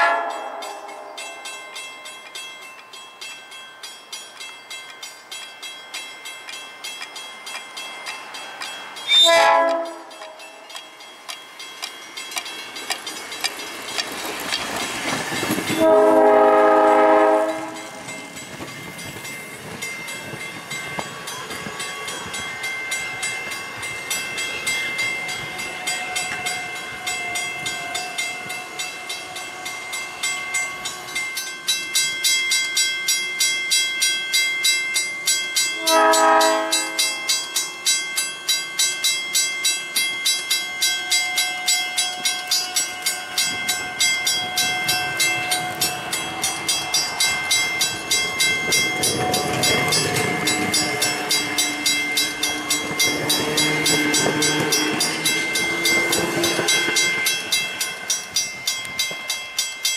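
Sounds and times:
train horn chord blast: 0:00.0 - 0:01.2, 0:09.1 - 0:10.4, 0:15.8 - 0:18.0, 0:35.8 - 0:37.2, 0:49.2 - 0:57.1
electric train passing: 0:00.0 - 0:59.9
wheels clacking over rail joints: 0:06.4 - 0:30.0, 0:42.0 - 0:59.9.

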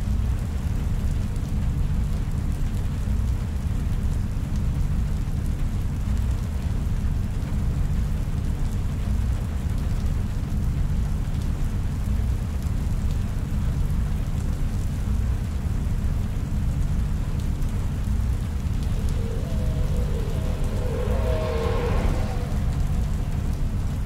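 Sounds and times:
deep rumbling drone: 0:18.2 - 0:24.0
even hiss: 0:18.7 - 0:24.0.

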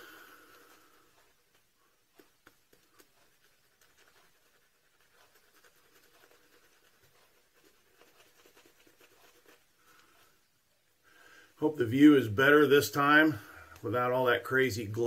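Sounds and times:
shaving brush swishing: 0:02.1 - 0:10.5.

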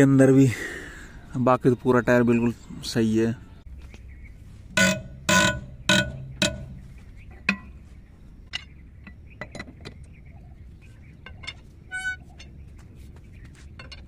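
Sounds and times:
wrench clanking on wheel nuts: 0:04.8 - 0:06.9, 0:13.8 - 0:14.0.

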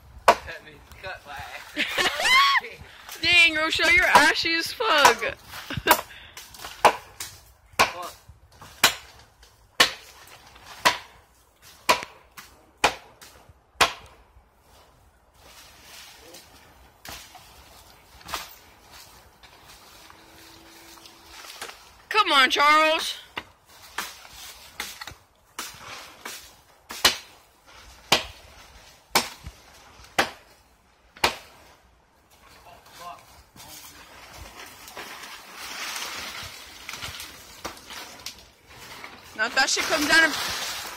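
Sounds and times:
machete chopping into tree trunk: 0:05.9 - 0:09.2, 0:09.8 - 0:14.2, 0:23.4 - 0:27.4, 0:28.0 - 0:28.4, 0:29.1 - 0:30.5, 0:31.2 - 0:31.6.

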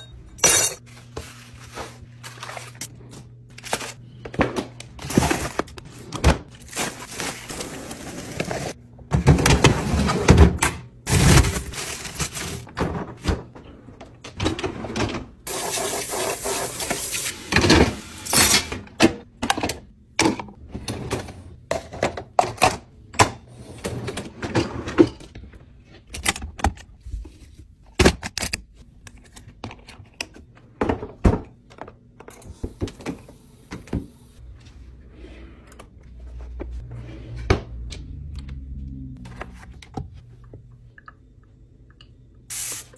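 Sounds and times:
dishes and glasses clinking: 0:00.0 - 0:00.8
plastic bags rustling: 0:04.9 - 0:08.8, 0:11.1 - 0:12.8.

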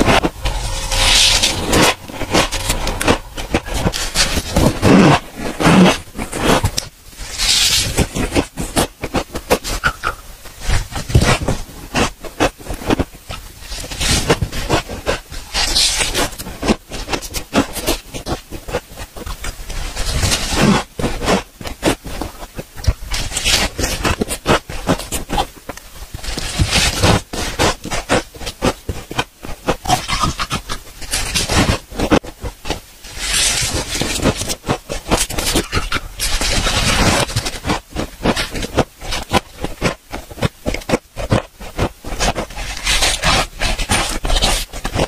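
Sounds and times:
scraping sweep: 0:00.0 - 0:06.4
crunching and chewing ice: 0:26.4 - 0:45.0.

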